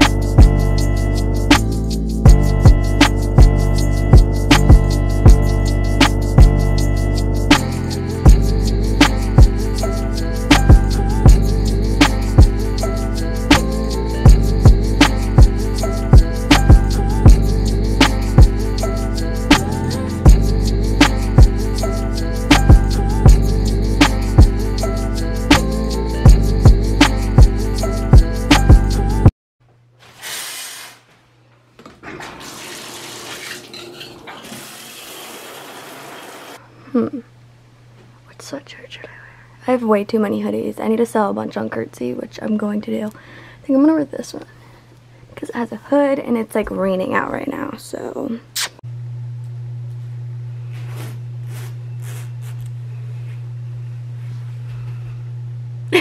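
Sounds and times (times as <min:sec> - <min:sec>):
water running from tap: 0:32.1 - 0:36.6
steady low hum: 0:47.7 - 0:56.0.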